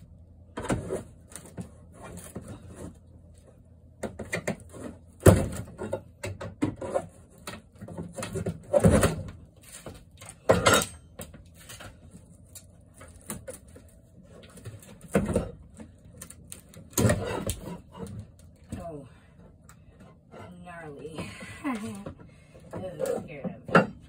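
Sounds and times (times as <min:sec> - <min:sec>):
wood knocking and scraping on wood: 0:00.5 - 0:10.6.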